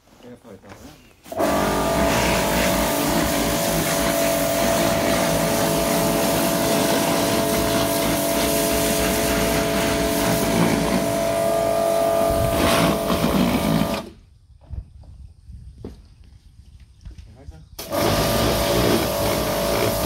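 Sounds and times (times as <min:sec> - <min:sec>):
water jet spraying hiss: 0:01.3 - 0:14.0, 0:17.8 - 0:20.0
pressure washer motor whine: 0:01.3 - 0:14.2, 0:17.8 - 0:20.0.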